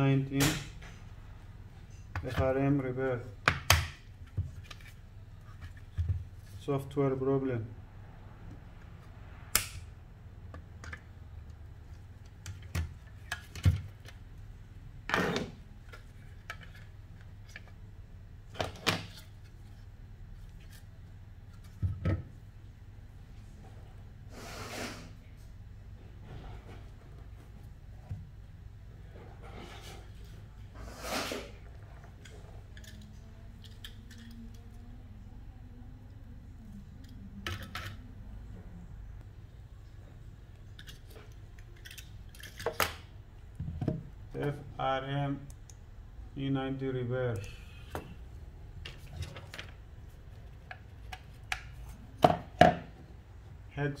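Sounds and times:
steady low hum: 0:25.1 - 0:54.0.

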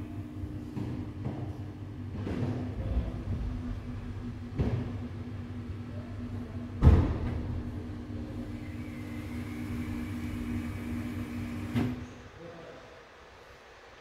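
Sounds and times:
muffled motor humming: 0:00.0 - 0:11.8
loud thump: 0:06.8 - 0:07.6.

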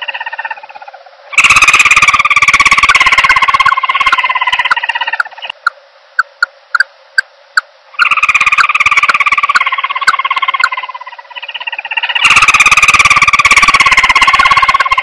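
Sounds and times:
fast pulsing bird trill: 0:00.0 - 0:06.9, 0:08.0 - 0:15.0
sharp clicks: 0:03.3 - 0:07.7.

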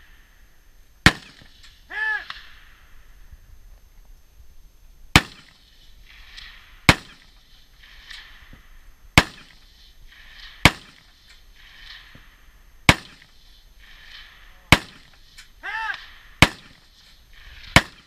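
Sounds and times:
rifle shots with echo: 0:01.0 - 0:01.6, 0:05.1 - 0:08.5, 0:09.1 - 0:15.3, 0:15.9 - 0:18.0.

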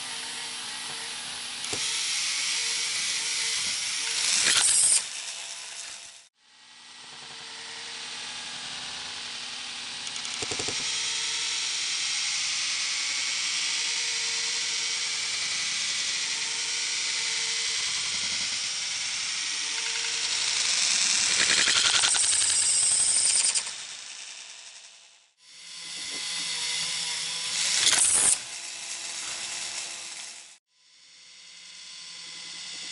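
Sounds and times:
toy roller coaster gears clattering: 0:04.2 - 0:06.2, 0:20.0 - 0:25.1.

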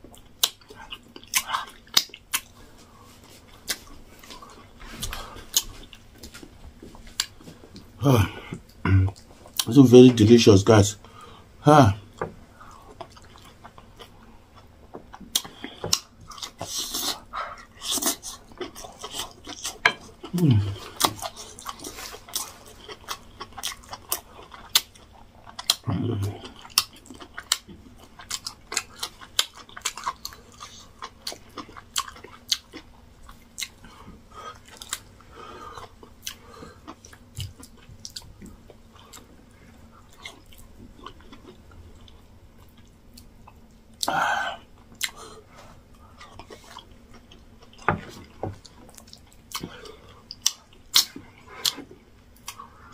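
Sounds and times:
wet chewing and lip-smacking: 0:00.1 - 0:02.6, 0:03.2 - 0:07.9, 0:12.7 - 0:35.1, 0:35.7 - 0:44.1, 0:44.8 - 0:45.3, 0:45.9 - 0:52.8
person humming with enjoyment: 0:20.3 - 0:20.9.

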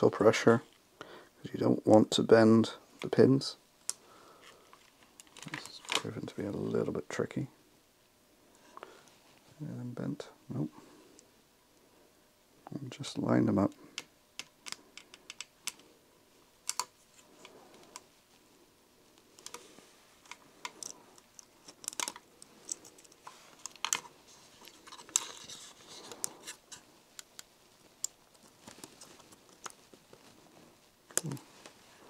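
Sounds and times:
small clicks and taps: 0:13.9 - 0:15.8, 0:16.7 - 0:18.1.

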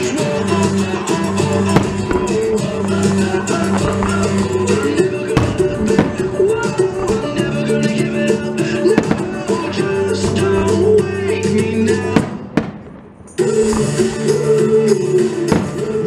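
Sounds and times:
fireworks bursting: 0:00.0 - 0:16.0
music playing: 0:00.0 - 0:16.0
sharp bang: 0:01.7 - 0:08.2.

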